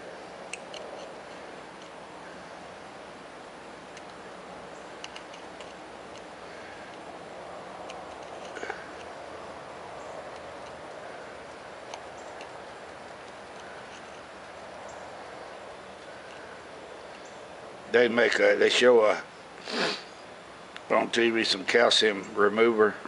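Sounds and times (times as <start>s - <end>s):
drill bit clicking and scraping: 5.0s - 7.1s, 7.8s - 9.1s.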